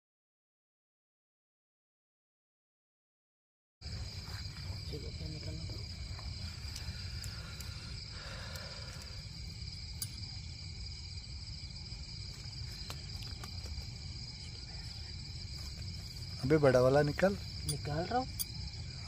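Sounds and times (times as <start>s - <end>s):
crickets chirring: 3.8s - 19.0s
faint clicks: 6.6s - 9.2s.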